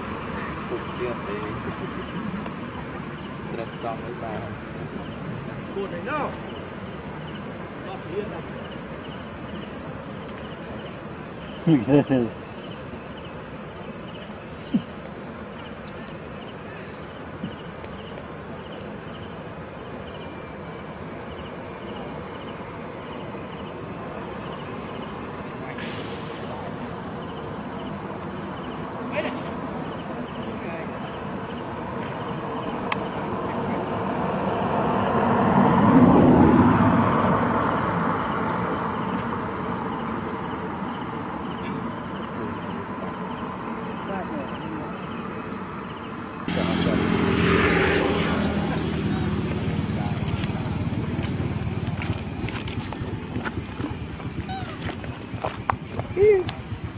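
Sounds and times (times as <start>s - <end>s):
insects chirping: 0.0s - 56.9s
low rumbling noise: 46.5s - 55.4s.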